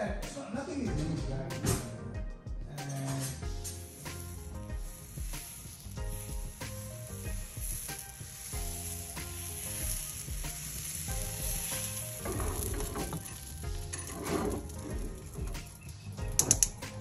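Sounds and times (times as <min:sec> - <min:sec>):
batter sizzling on hot griddle: 0:03.4 - 0:17.0.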